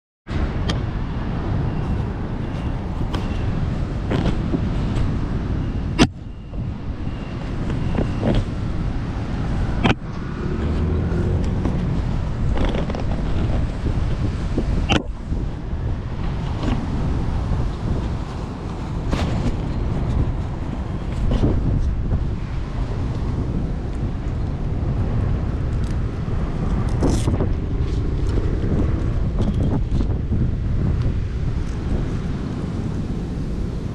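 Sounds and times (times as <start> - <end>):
road traffic rumble: 0.3 - 33.9
wind on microphone: 0.3 - 33.9.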